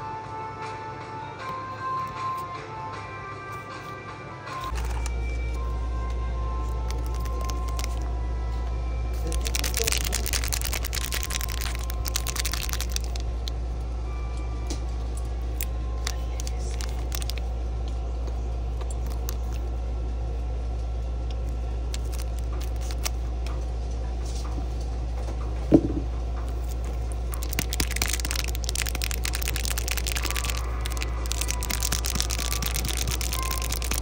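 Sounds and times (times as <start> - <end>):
foil pack crinkling and tearing: 4.7 - 5.1, 6.8 - 8.0, 9.2 - 13.5, 16.0 - 17.5, 18.9 - 19.6, 21.9 - 23.2, 26.6 - 34.0
steady low hum: 4.7 - 34.0.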